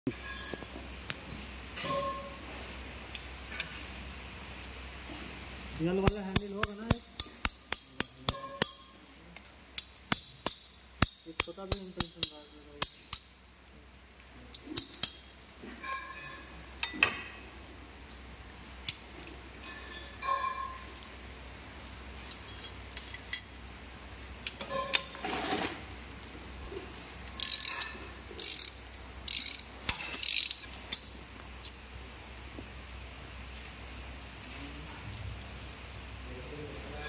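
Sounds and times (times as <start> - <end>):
ratchet wrench rasping: 6.0 - 8.9, 27.3 - 31.1
hand tools clinking on metal: 6.0 - 9.0, 9.8 - 13.5, 14.5 - 17.4, 22.2 - 23.7, 27.3 - 31.1.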